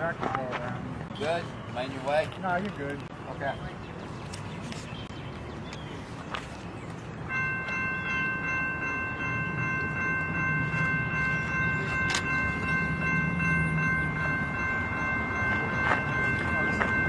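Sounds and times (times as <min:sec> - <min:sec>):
steady high multi-tone sound: 0:07.3 - 0:17.0.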